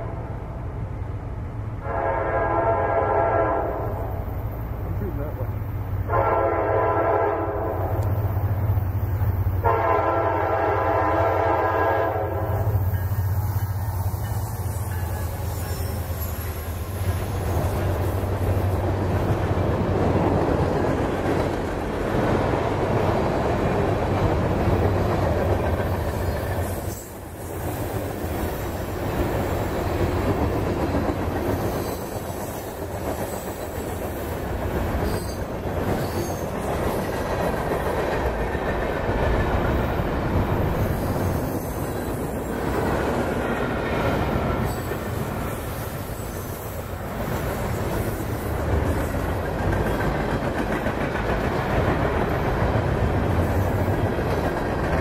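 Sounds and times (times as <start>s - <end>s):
locomotive engines droning: 0.0s - 55.0s
train cars rumbling past: 0.0s - 55.0s
locomotive air horn blasts: 1.8s - 4.0s, 6.1s - 7.9s, 9.6s - 12.8s
wheel clatter on rails: 47.2s - 55.0s.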